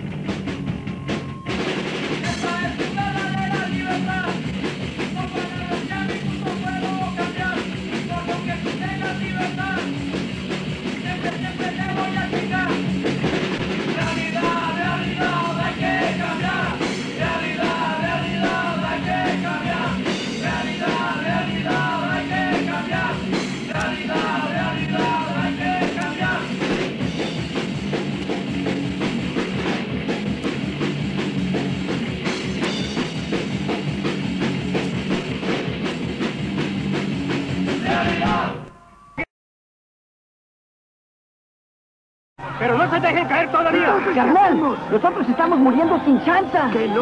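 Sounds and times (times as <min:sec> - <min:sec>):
punk rock band playing: 0:00.0 - 0:38.8, 0:42.4 - 0:47.0
person singing: 0:14.0 - 0:26.6, 0:37.8 - 0:39.2.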